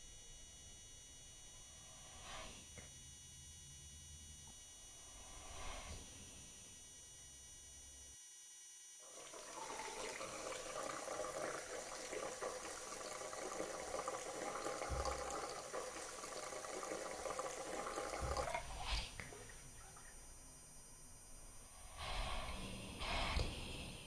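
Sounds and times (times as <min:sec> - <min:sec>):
sink tap running: 0:09.1 - 0:19.6
water splashing into basin: 0:09.1 - 0:20.2.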